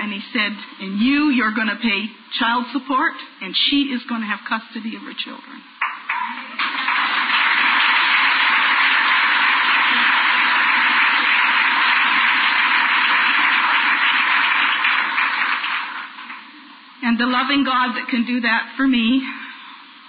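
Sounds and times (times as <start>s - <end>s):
audience applauding: 5.8s - 16.5s.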